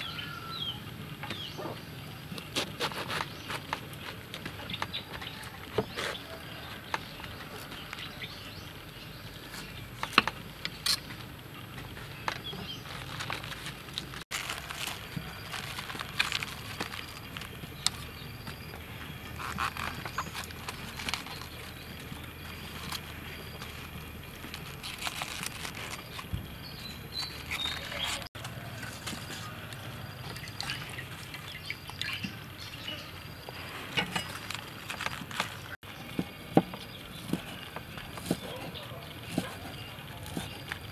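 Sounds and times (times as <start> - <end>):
knife cutting cabbage on board: 2.5 - 3.8
water dripping and trickling: 29.8 - 32.7.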